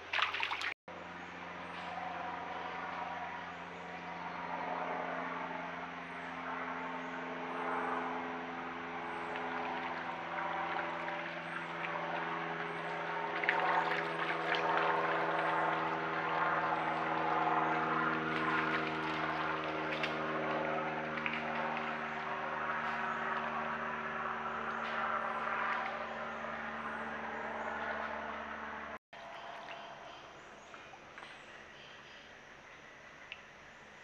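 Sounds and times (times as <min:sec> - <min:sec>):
deer splashing through water: 0:00.0 - 0:00.8, 0:08.5 - 0:24.2
engine drone: 0:00.0 - 0:33.8.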